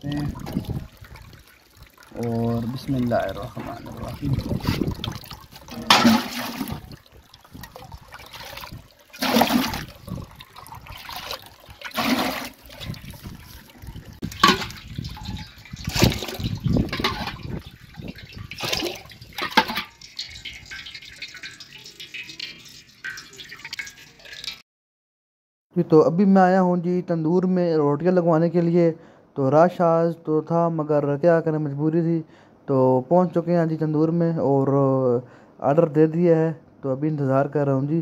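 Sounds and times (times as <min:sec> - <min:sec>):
tap trickling into steel basin: 0:00.0 - 0:24.6
water pouring into steel bucket: 0:00.0 - 0:24.6.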